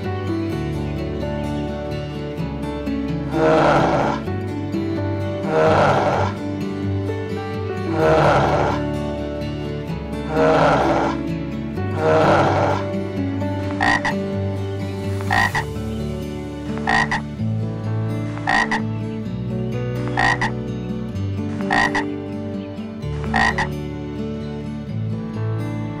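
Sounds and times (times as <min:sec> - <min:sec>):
frog croaking: 0:03.2 - 0:04.3, 0:05.3 - 0:06.4, 0:07.8 - 0:08.9, 0:10.2 - 0:14.4, 0:15.0 - 0:15.8, 0:16.5 - 0:19.2, 0:20.0 - 0:20.7, 0:21.4 - 0:22.2, 0:23.1 - 0:23.8.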